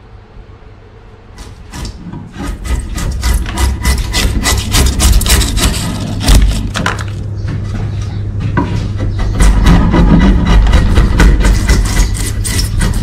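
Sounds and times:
chisel scraping wood: 1.4s - 7.2s, 9.0s - 13.0s.

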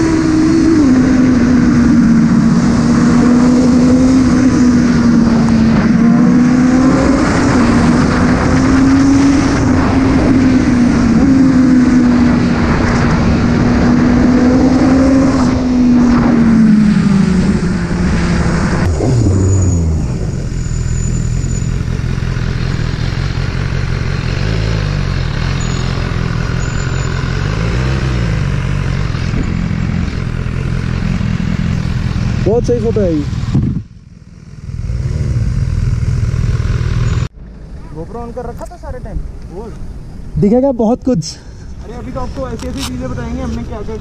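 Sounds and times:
wind rush: 0.0s - 20.9s
motorcycle engine running: 0.0s - 38.3s.

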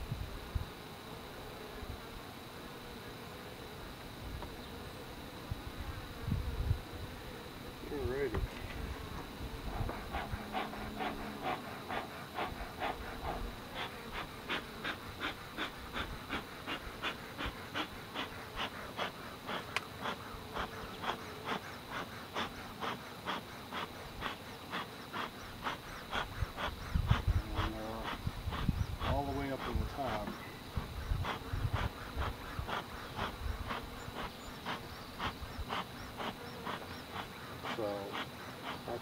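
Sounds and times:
honeybees buzzing: 0.0s - 39.0s
bellows puffing: 8.8s - 39.0s.

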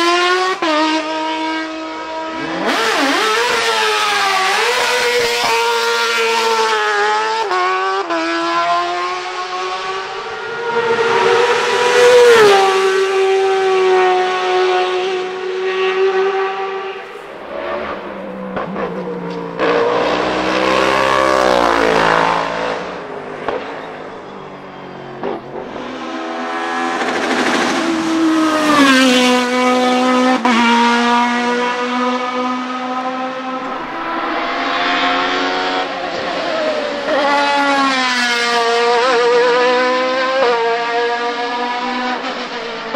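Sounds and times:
race cars passing at full throttle: 0.0s - 42.9s.

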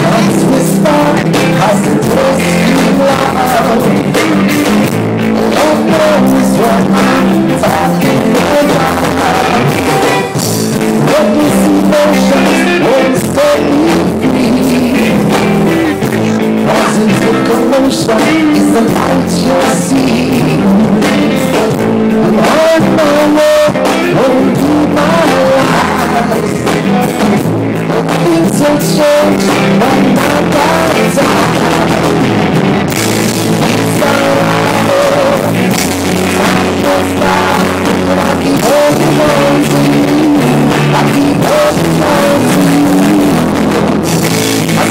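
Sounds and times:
live rock band playing: 0.0s - 44.9s.

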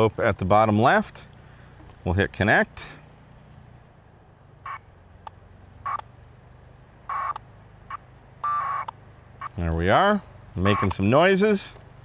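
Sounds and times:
packet radio data tones: 7.1s - 9.6s, 10.6s - 11.1s.

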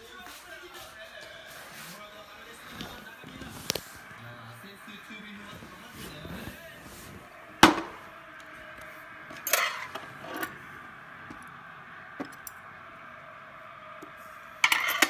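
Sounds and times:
plate knocking on tray: 7.6s - 8.0s
tableware clattering: 9.3s - 10.6s, 14.6s - 15.0s.

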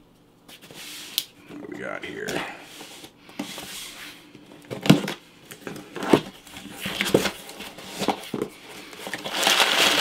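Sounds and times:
paper and cardboard rustling: 2.2s - 10.0s.

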